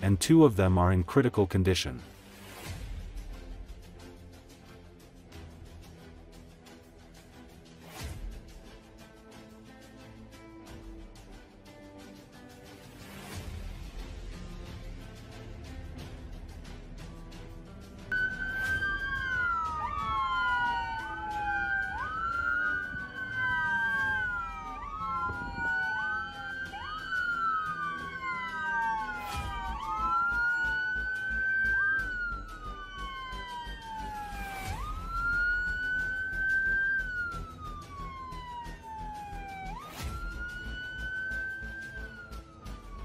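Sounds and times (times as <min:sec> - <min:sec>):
police sirens wailing: 0:16.0 - 0:43.0.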